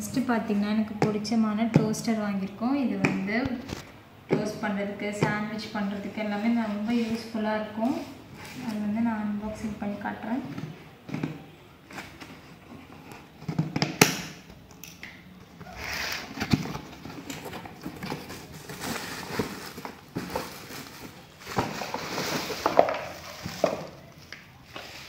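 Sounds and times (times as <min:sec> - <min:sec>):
cardboard and plastic rustling: 0:10.6 - 0:13.8, 0:15.5 - 0:25.0.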